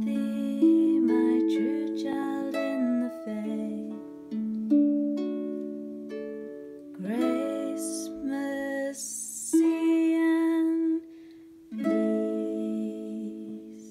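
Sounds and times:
woman singing: 0.0 - 4.0, 7.0 - 11.2, 11.8 - 13.9.

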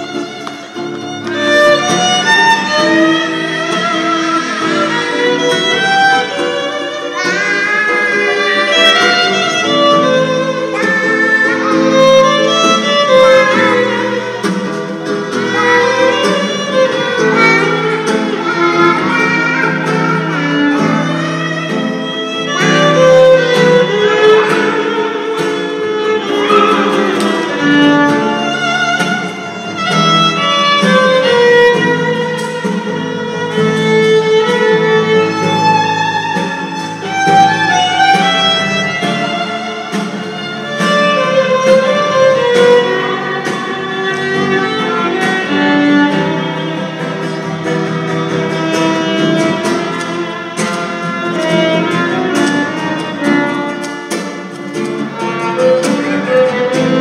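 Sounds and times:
strummed acoustic guitar: 0.0 - 57.0
violin melody: 0.0 - 57.0.

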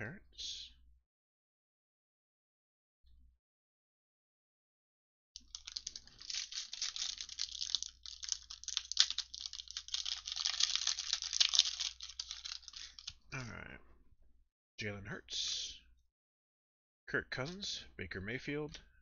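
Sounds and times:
foil wrapper crinkling and tearing: 5.4 - 13.1.

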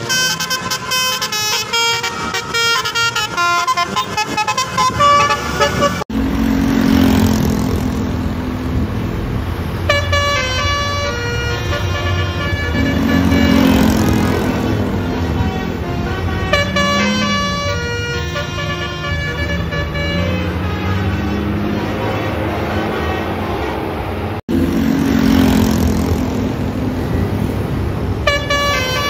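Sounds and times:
multi-tone bus horn melodies: 0.0 - 6.2, 9.7 - 25.4, 28.2 - 29.0
bus engine droning: 0.0 - 29.0.

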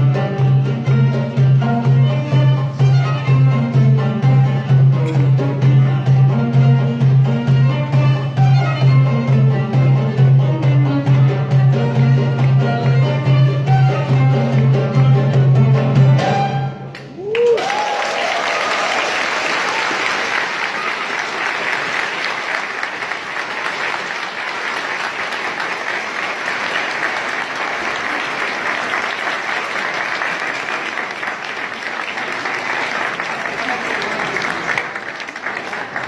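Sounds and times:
violin and oud music: 0.1 - 15.6
audience applauding: 17.0 - 36.0
crowd whooping: 17.1 - 21.9.

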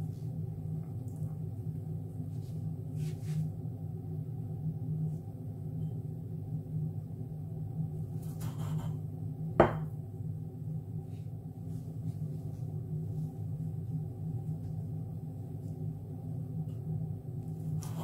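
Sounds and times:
glass knocking on worktop: 9.6 - 9.9.

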